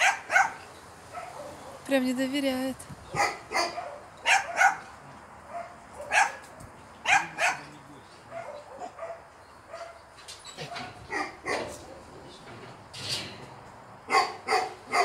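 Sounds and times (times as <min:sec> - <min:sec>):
dog barking: 0:00.0 - 0:01.9, 0:03.1 - 0:10.0, 0:10.6 - 0:11.8, 0:14.1 - 0:15.0.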